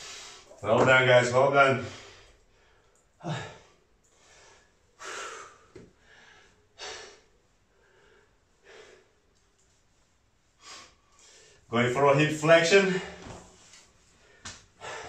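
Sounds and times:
man breathing hard: 0.0 - 0.5, 1.8 - 9.3, 14.1 - 15.0.

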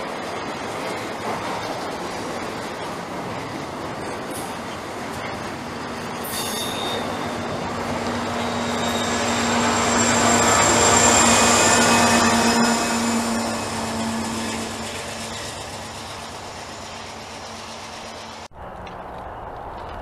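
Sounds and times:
freight train rolling past: 0.0 - 20.0
steel wheels squealing: 3.4 - 18.5.

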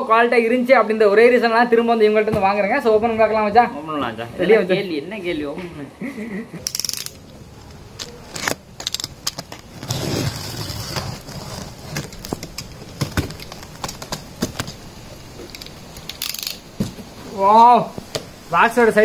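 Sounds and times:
tape and cardboard crackles: 6.6 - 17.2.

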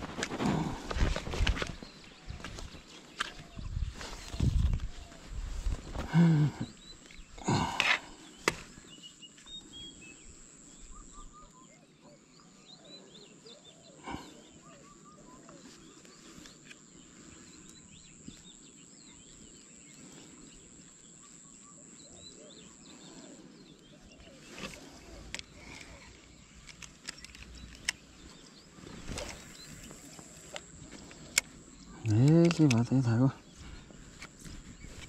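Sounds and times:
small birds chirping: 0.0 - 35.0
handling noises: 24.2 - 35.0.

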